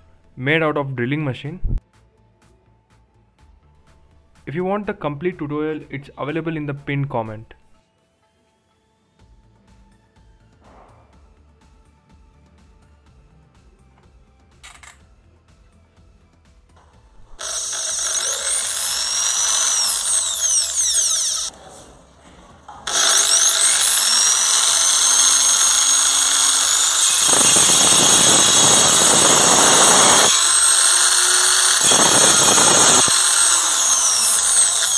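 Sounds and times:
electric drill spinning saw blade: 0:17.2 - 0:21.5, 0:22.8 - 0:34.9
saw blade cutting wood: 0:17.2 - 0:21.5, 0:22.8 - 0:34.9.

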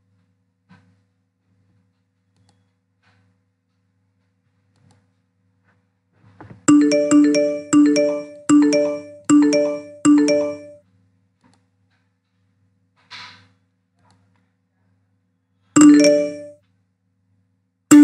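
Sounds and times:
notification chimes: 0:06.7 - 0:10.8, 0:15.8 - 0:16.5.

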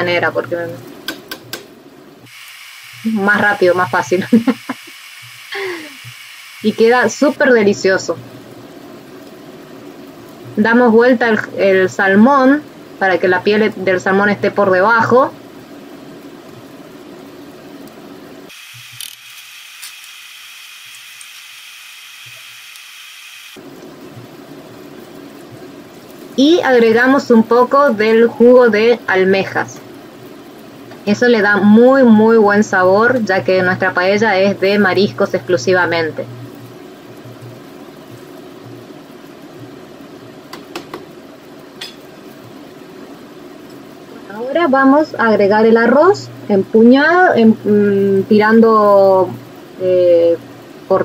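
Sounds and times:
broth simmering: 0:00.0 - 0:51.0
food bubbling in a pan: 0:23.6 - 0:31.1, 0:33.5 - 0:44.2.

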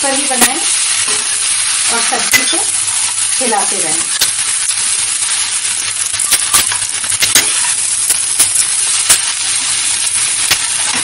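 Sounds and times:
vegetables sizzling in a pan: 0:00.0 - 0:11.0
metal spoon scraping a pan: 0:00.2 - 0:03.4, 0:05.2 - 0:11.0.

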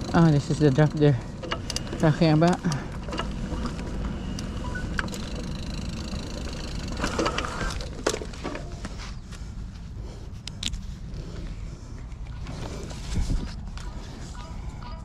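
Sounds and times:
tyres rumbling on dirt: 0:00.0 - 0:09.3
bike rattling: 0:00.0 - 0:14.2
wind on microphone: 0:12.8 - 0:14.3.

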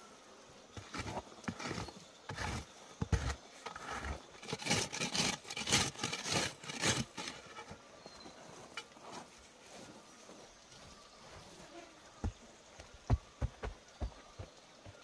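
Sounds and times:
stick scraping dry soil: 0:00.7 - 0:09.9.

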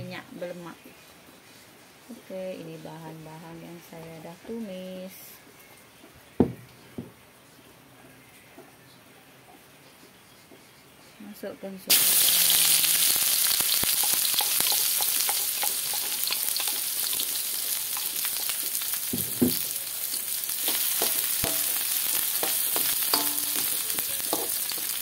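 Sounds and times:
food sizzling in hot oil: 0:11.9 - 0:25.0
metal spatula scraping wok: 0:19.6 - 0:25.0.

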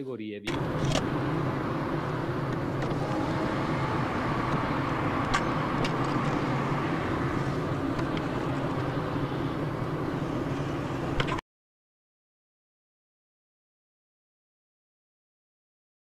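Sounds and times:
car road and engine noise: 0:00.5 - 0:11.4.

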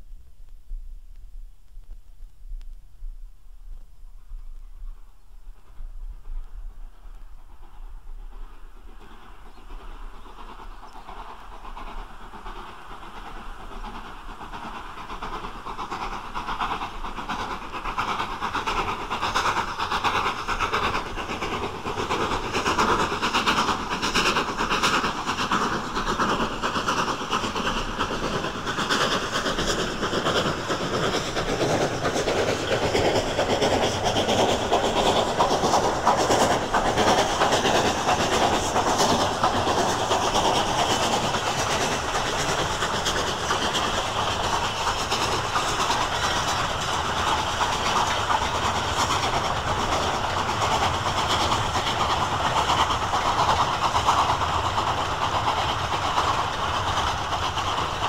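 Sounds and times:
train clatter: 0:03.8 - 0:58.0
steam locomotive exhaust: 0:04.2 - 0:58.0.

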